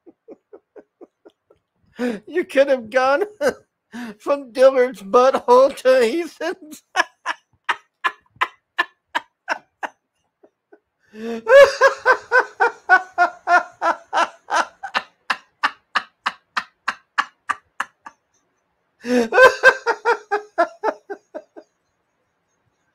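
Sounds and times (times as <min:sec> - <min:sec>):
adult laughter: 0:00.0 - 0:01.7, 0:06.4 - 0:18.3, 0:19.0 - 0:21.8.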